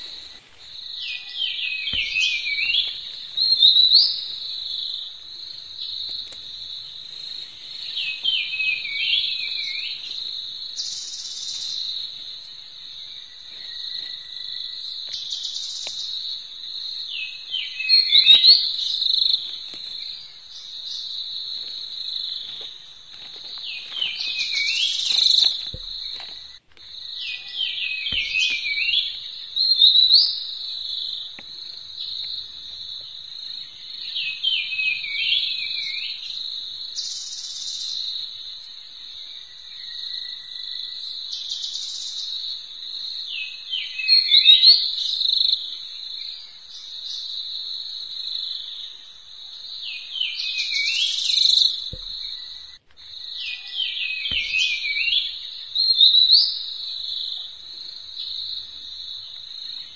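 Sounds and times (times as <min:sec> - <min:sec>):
insects trilling: 0:00.0 - 0:59.9
short chirping calls: 0:01.0 - 0:05.1, 0:23.5 - 0:36.4.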